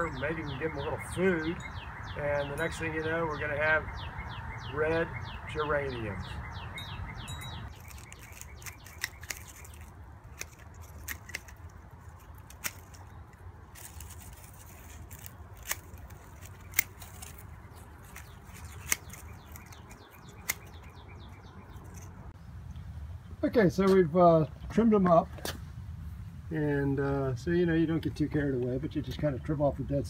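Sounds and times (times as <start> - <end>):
pruning shears snipping stems: 7.7 - 22.4.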